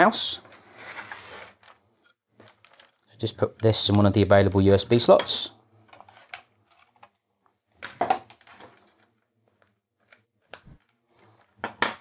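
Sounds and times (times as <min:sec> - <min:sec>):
cable rustling and clattering: 0:00.5 - 0:04.1, 0:05.8 - 0:07.2, 0:07.8 - 0:11.6.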